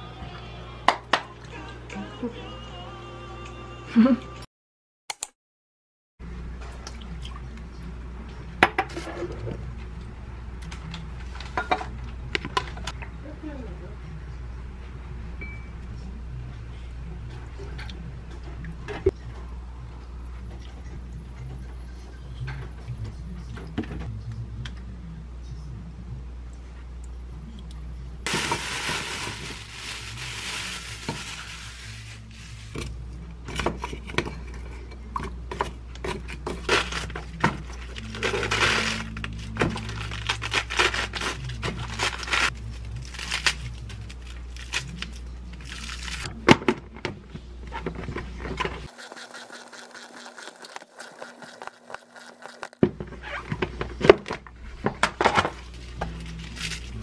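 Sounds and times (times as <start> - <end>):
lettuce leaves tearing: 37.9 - 46.3, 56.2 - 57.0.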